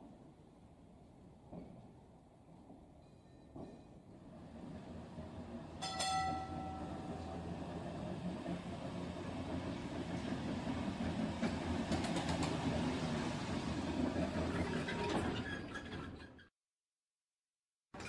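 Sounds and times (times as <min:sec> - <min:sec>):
model tram motor and wheels rumbling: 0:01.4 - 0:16.5
bell ding: 0:05.8 - 0:07.2.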